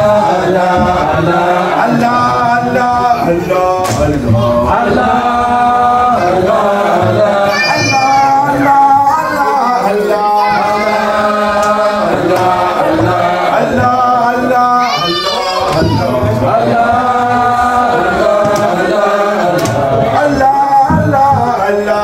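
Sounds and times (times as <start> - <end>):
group singing devotional chant: 0.0 - 22.0
higher voice singing: 0.0 - 22.0
man leading chant: 0.0 - 22.0.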